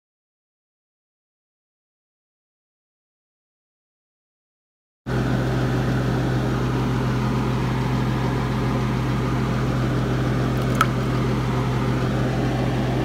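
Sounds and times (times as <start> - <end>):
fan humming: 5.1 - 13.0.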